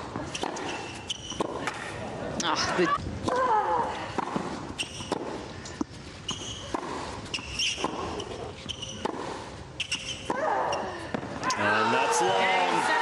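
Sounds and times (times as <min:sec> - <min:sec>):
rackets hitting tennis ball: 0:00.0 - 0:02.1, 0:03.0 - 0:11.7
shoes squeaking on court: 0:00.1 - 0:02.0, 0:04.4 - 0:10.9.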